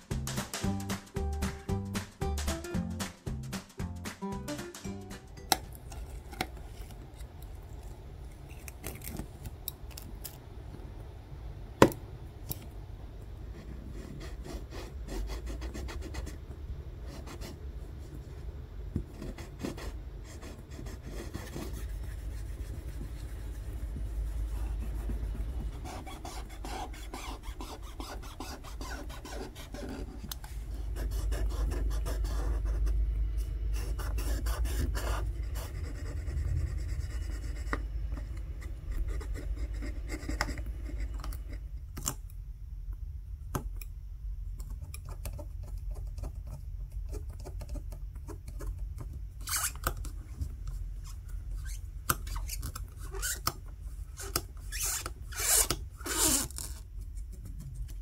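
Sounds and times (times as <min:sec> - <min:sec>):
steady low hum: 0:00.0 - 0:58.0
sharp scratches and clicks: 0:19.1 - 0:33.0
scratchy rubbing and scraping: 0:19.1 - 0:41.7, 0:49.4 - 0:58.0
cloth wiping: 0:20.9 - 0:32.9.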